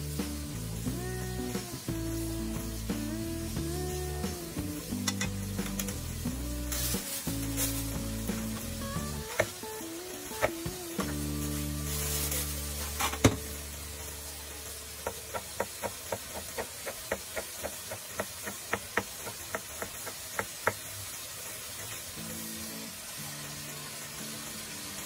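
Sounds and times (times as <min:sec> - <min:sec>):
knife chopping on cutting board: 0:09.3 - 0:09.5.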